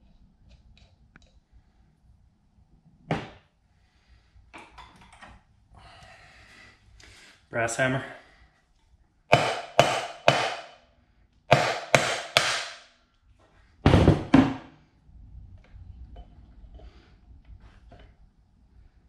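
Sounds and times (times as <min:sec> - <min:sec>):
hammer striking metal: 0:09.3 - 0:10.8, 0:11.5 - 0:12.9.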